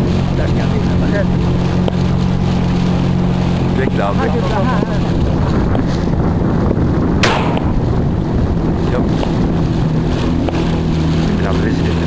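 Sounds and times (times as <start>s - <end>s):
outboard motor running: 0.0s - 12.0s
wind noise on microphone: 0.0s - 12.0s
shotgun shot: 7.2s - 7.9s.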